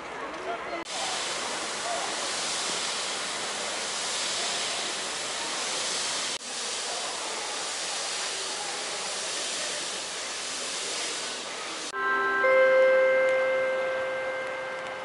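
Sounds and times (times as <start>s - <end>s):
rainfall hiss: 0.9s - 12.0s.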